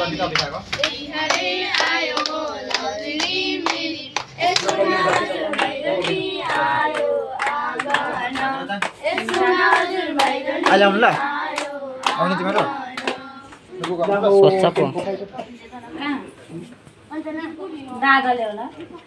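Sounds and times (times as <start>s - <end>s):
girls singing together: 0.0s - 13.9s
hands clapping in time: 0.4s - 10.8s, 11.5s - 14.2s.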